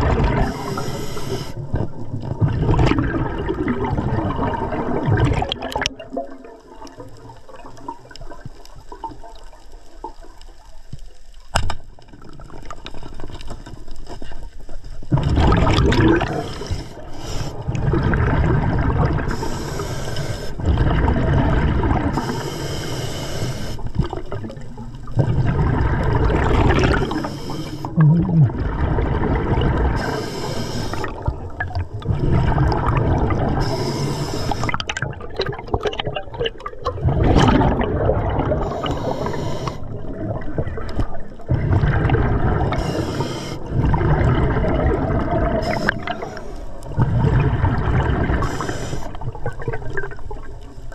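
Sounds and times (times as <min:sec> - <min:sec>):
exhaust bubbles rushing: 0:00.0 - 0:00.5, 0:01.8 - 0:07.0, 0:15.1 - 0:16.7, 0:17.6 - 0:19.4, 0:20.6 - 0:22.2, 0:24.0 - 0:27.2, 0:27.9 - 0:30.0, 0:31.0 - 0:33.6, 0:34.6 - 0:38.8, 0:40.0 - 0:42.8, 0:43.6 - 0:46.2, 0:46.9 - 0:48.5
regulator hiss on inhale: 0:00.4 - 0:01.8, 0:16.3 - 0:17.8, 0:19.2 - 0:20.7, 0:22.1 - 0:24.0, 0:27.0 - 0:28.0, 0:30.0 - 0:31.2, 0:33.6 - 0:34.8, 0:38.6 - 0:40.0, 0:42.7 - 0:43.8, 0:45.6 - 0:46.9, 0:48.4 - 0:49.2.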